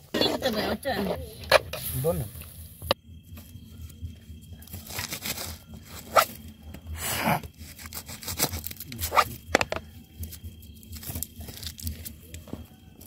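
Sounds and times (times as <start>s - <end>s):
onion tearing crunch: 7.6s - 9.4s, 10.9s - 12.1s.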